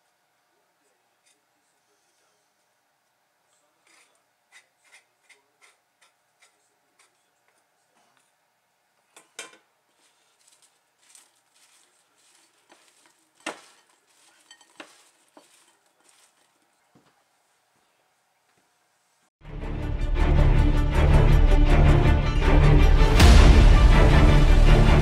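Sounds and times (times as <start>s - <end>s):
spoon clinking against ceramic bowl: 14.3s - 15.6s.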